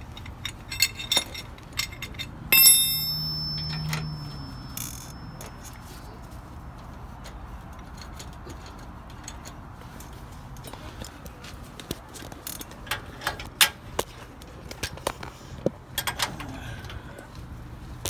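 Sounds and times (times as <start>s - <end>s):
metallic clicks and clanks of tools: 0.0s - 5.8s, 6.8s - 15.2s, 15.9s - 17.0s
steady low rumble: 0.0s - 6.7s.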